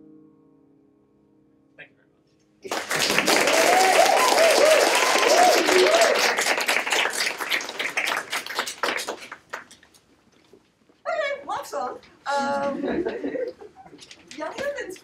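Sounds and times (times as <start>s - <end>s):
audience applauding: 2.6s - 9.8s
wavering cheer: 3.0s - 7.8s.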